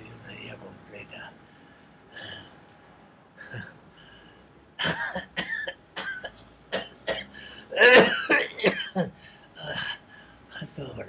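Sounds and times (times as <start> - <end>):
old man coughing harshly: 4.8 - 9.9.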